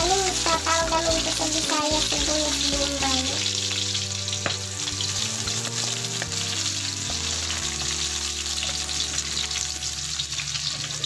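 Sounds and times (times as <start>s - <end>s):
onion sizzling in hot oil: 0.0s - 11.0s
spatula scraping and tapping pan: 3.5s - 9.7s.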